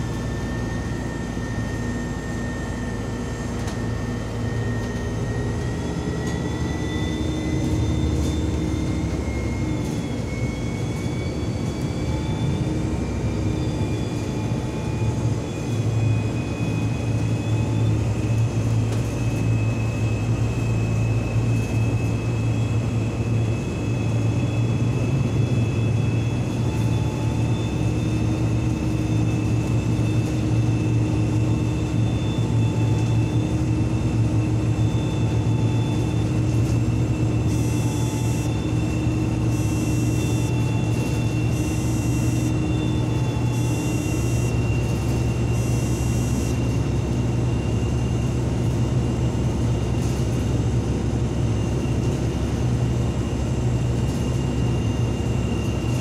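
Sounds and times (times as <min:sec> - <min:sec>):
bus engine and road drone: 0:00.0 - 0:56.0
thin high whine: 0:34.5 - 0:46.9.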